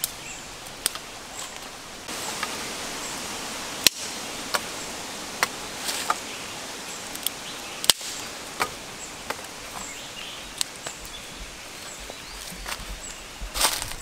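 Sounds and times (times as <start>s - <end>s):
fire of sticks crackling: 0.0s - 14.0s
steady background hiss: 0.0s - 14.0s
sharp pops and snaps: 7.0s - 11.2s.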